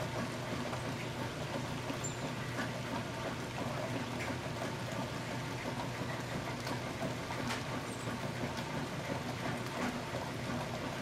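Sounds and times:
rain falling in woodland: 0.0s - 11.0s
faint raindrop ticks: 3.5s - 10.0s.

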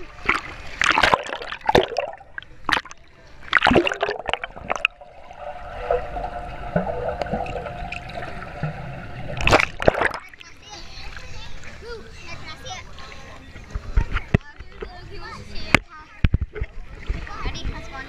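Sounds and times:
pool water splashing: 0.0s - 14.0s.

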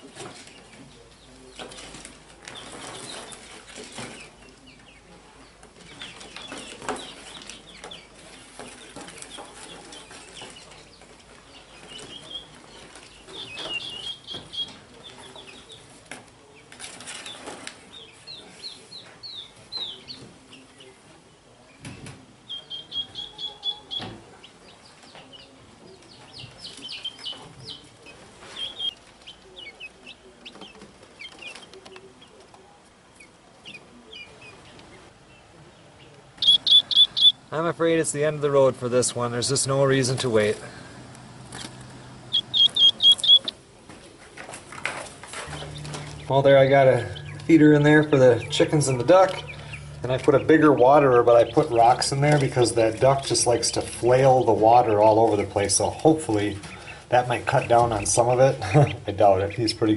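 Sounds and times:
chicks peeping: 0.0s - 59.9s.

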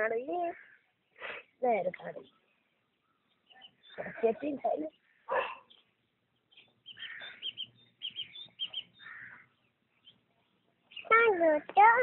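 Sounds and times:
soft breathy bursts: 1.1s - 1.6s.

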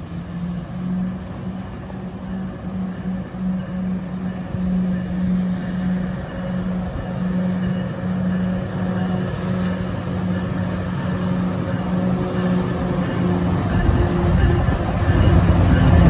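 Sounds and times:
diesel locomotive drone: 0.0s - 16.0s
train rumble: 0.0s - 16.0s.

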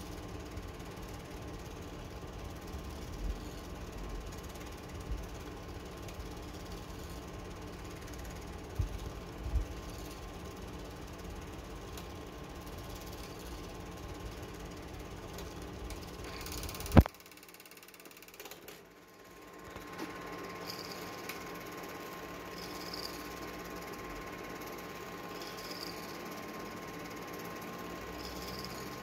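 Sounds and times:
film projector rattling: 0.0s - 29.0s.

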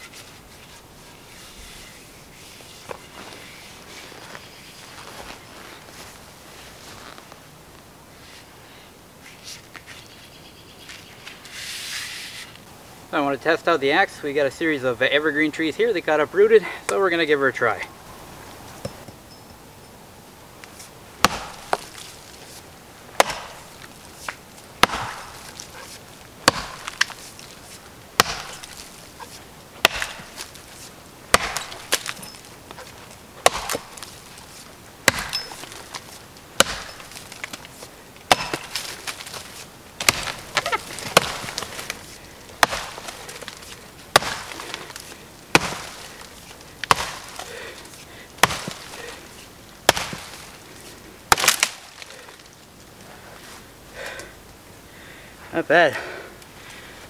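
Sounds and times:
axe chopping log: 21.2s - 22.1s, 23.2s - 47.8s, 48.4s - 49.2s, 49.8s - 50.5s, 51.3s - 52.2s.

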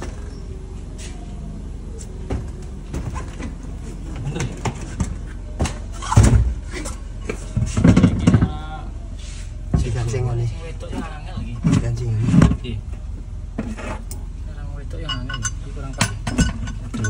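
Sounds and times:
steady low hum: 0.0s - 17.0s
loud thumps: 4.4s - 6.7s.

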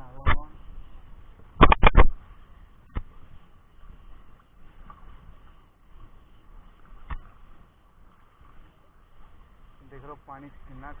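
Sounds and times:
sharp click: 1.6s - 2.2s.

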